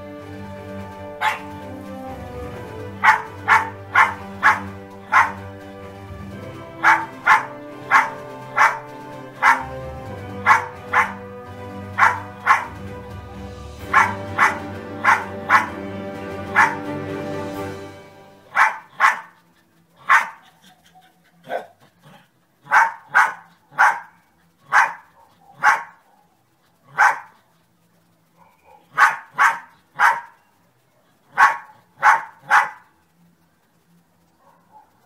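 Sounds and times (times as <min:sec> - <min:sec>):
dog barking: 0:01.2 - 0:01.5, 0:03.0 - 0:05.4, 0:06.8 - 0:09.7, 0:10.4 - 0:11.2, 0:12.0 - 0:12.8, 0:13.9 - 0:15.8, 0:16.5 - 0:16.9, 0:18.5 - 0:27.4, 0:28.3 - 0:32.9, 0:34.4 - 0:35.0.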